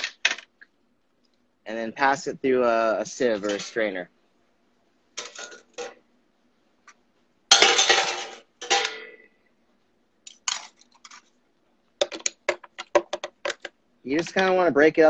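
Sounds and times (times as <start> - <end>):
kitchen gear clattering: 7.5 - 9.2.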